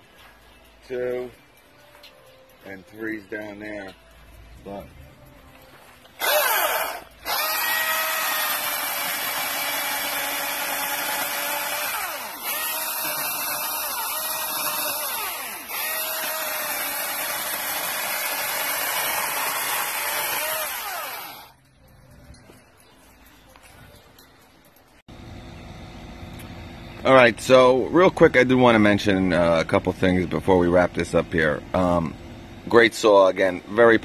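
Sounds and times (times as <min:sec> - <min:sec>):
chainsaw cutting branch: 0:06.2 - 0:21.6.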